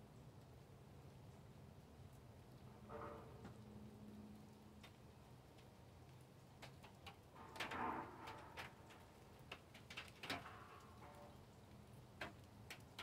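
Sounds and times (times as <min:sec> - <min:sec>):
raindrops tapping: 0:04.5 - 0:13.0.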